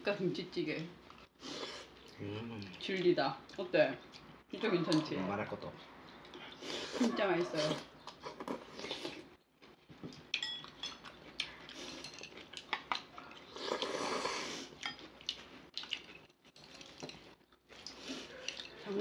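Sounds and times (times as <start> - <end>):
chopsticks and spoons clicking on bowls: 10.1 - 13.4, 14.8 - 18.9.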